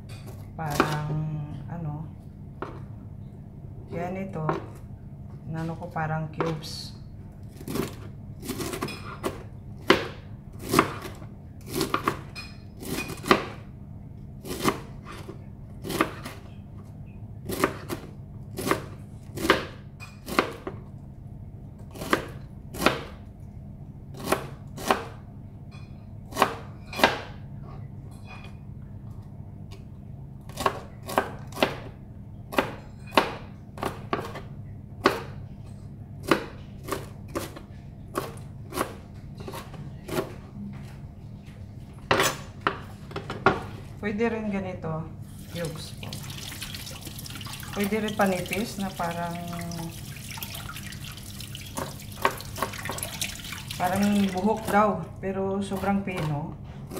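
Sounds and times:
knife chopping on cutting board: 7.6s - 13.6s, 14.4s - 16.4s, 17.4s - 20.8s, 21.9s - 23.2s, 24.2s - 25.2s, 26.3s - 27.4s, 30.5s - 31.9s, 32.5s - 34.4s, 36.2s - 40.4s, 51.7s - 53.3s.

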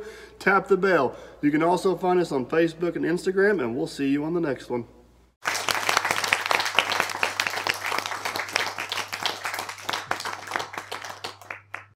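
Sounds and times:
many hands clapping: 5.4s - 11.9s.

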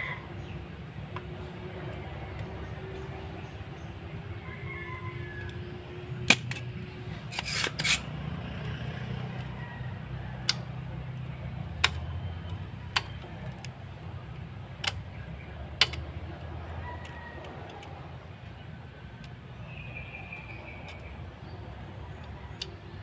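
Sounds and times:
desoldering pump clicks: 10.4s - 10.8s, 11.7s - 18.0s.

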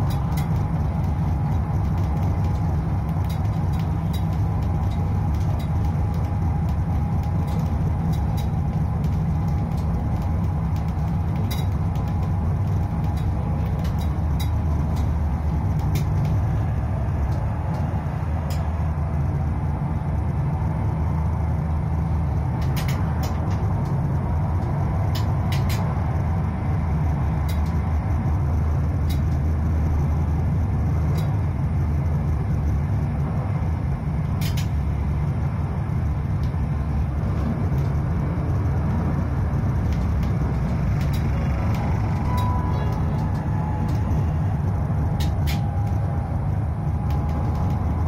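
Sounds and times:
sharp clicks: 0.0s - 18.7s, 22.5s - 24.0s, 24.6s - 25.9s, 34.3s - 34.8s, 38.6s - 48.0s
low hum: 0.0s - 48.0s
tram rumbling on track: 0.0s - 48.0s.

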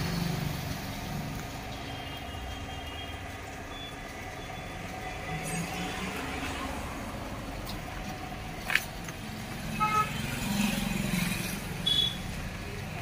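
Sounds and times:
road traffic rumble: 0.0s - 13.0s
vehicle horn toot: 9.8s - 10.2s, 11.8s - 12.3s.

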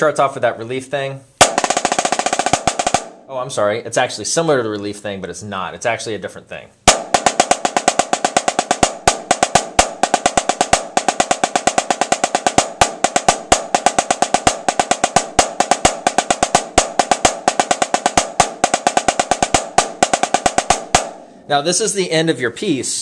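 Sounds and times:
snare drum roll with sticks: 1.4s - 3.3s, 6.9s - 21.3s.

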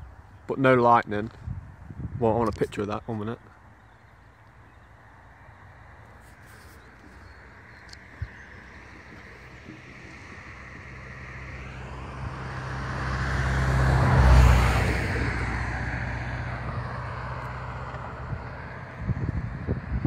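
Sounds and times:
vehicle passing by: 5.6s - 20.0s.

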